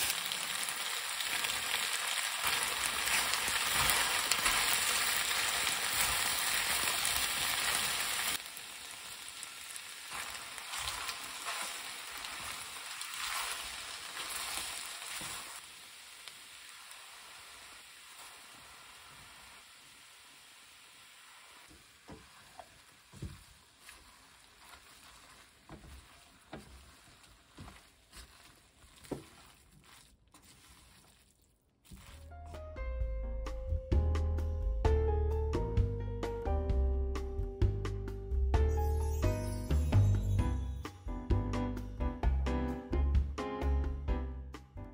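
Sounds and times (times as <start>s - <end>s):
food sizzling in a frying pan: 0.0s - 30.0s
spatula scraping a pan: 2.4s - 8.4s, 10.1s - 15.6s, 21.2s - 31.3s.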